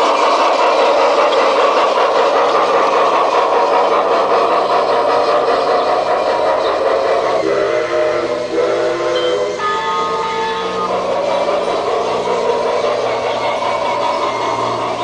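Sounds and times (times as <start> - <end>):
toy steam locomotive chugging: 0.0 - 15.0
pitched whistle: 7.6 - 11.1.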